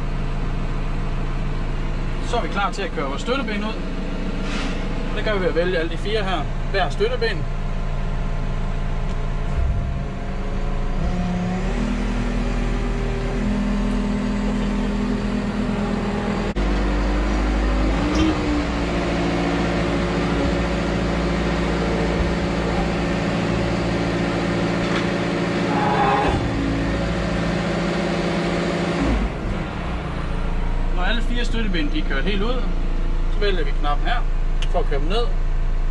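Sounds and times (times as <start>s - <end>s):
diesel engine and hydraulics running: 0.0s - 35.9s.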